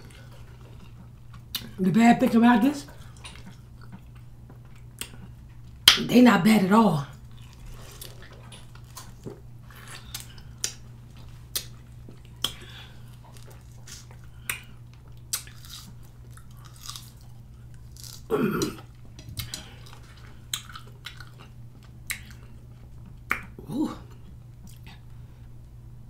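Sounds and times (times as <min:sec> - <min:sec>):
person humming: 0:23.6 - 0:24.2.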